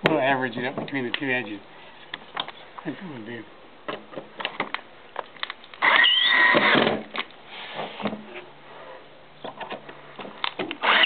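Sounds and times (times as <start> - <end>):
cordless drill motor whine: 5.8 - 6.8, 10.8 - 11.0.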